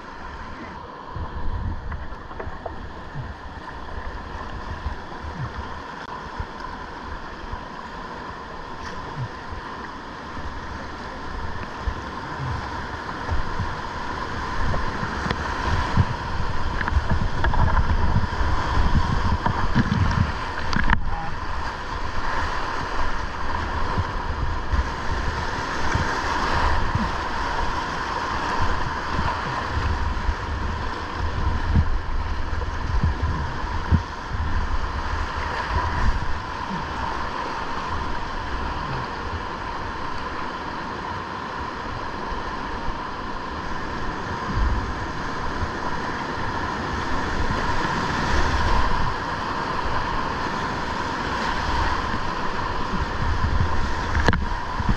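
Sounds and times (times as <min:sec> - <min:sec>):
river rapid rushing and splashing: 0:00.0 - 0:54.9
wind buffeting microphone: 0:11.6 - 0:22.3, 0:22.9 - 0:40.0, 0:49.9 - 0:54.9.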